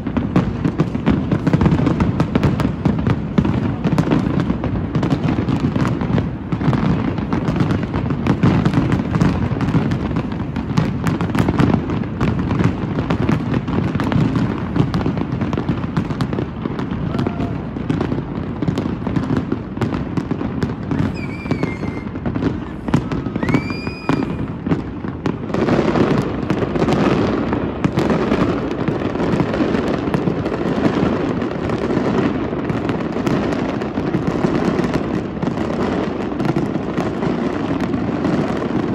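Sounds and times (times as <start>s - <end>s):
fireworks booming and crackling: 0.0s - 38.9s
firework whistles: 20.8s - 24.8s.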